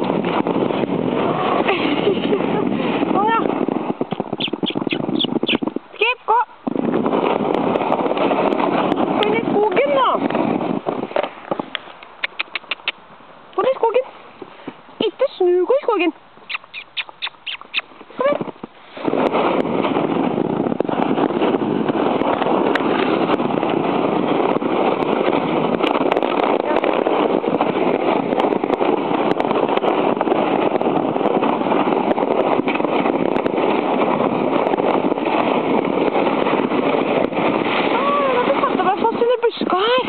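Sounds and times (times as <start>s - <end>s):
plastic sled scraping over snow: 0.0s - 4.4s, 6.8s - 12.0s, 17.9s - 40.0s.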